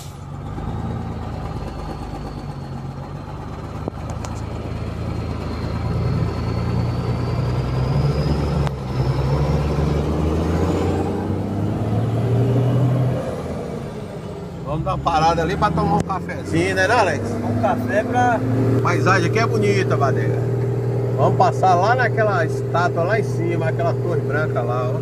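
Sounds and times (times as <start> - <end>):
truck engine running: 0.0 - 25.0.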